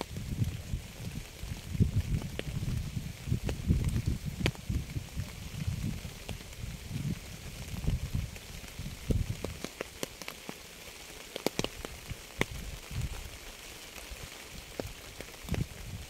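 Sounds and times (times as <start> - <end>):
rain hissing: 0.0 - 16.0
raindrops ticking on a surface: 0.0 - 16.0.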